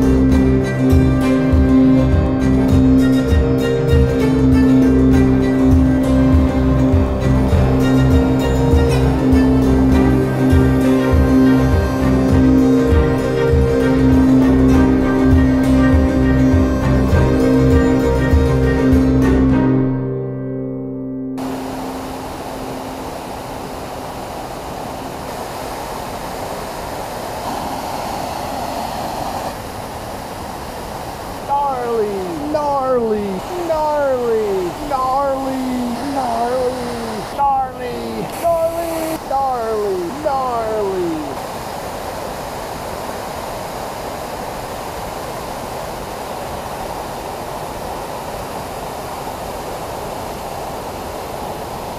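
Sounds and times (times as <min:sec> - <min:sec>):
waterfall rushing: 0:00.0 - 0:19.4, 0:21.4 - 0:51.9.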